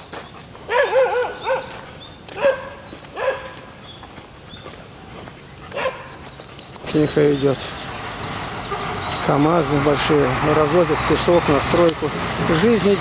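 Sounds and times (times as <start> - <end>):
dog barking: 0.7 - 3.6, 5.7 - 6.2.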